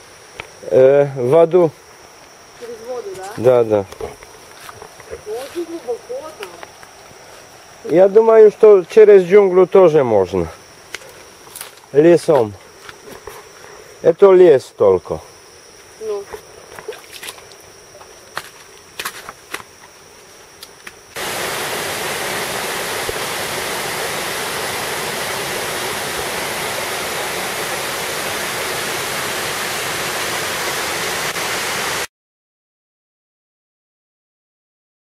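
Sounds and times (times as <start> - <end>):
high insect whine: 0.0 - 32.1
water rushing in stream: 21.2 - 32.1.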